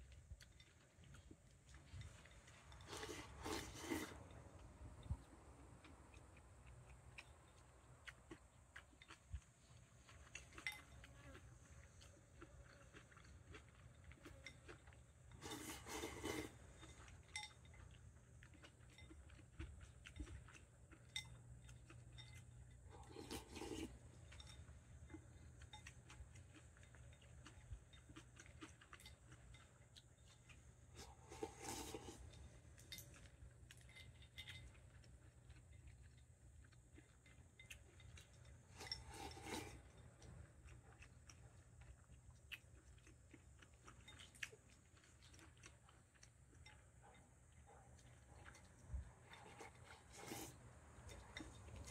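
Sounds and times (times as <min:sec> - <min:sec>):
eating noises: 0:00.0 - 0:51.9
chopsticks scraping glass bowl: 0:02.7 - 0:04.3, 0:15.4 - 0:17.5, 0:22.9 - 0:24.6, 0:31.0 - 0:33.0, 0:38.7 - 0:40.0, 0:49.3 - 0:51.9.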